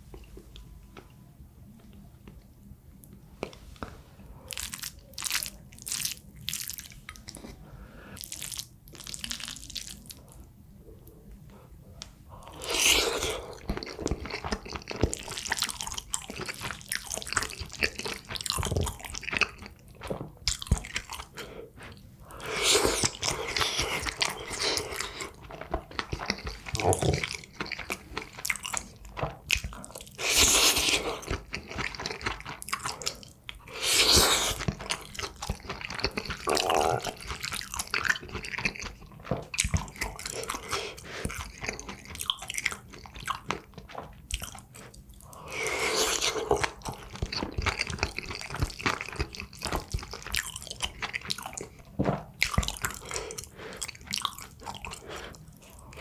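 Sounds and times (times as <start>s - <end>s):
chewing and biting food: 12.4s - 56.0s.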